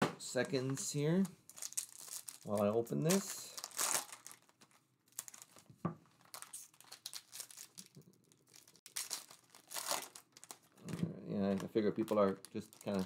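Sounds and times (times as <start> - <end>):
foil wrappers crinkling and tearing: 0.8 - 13.0.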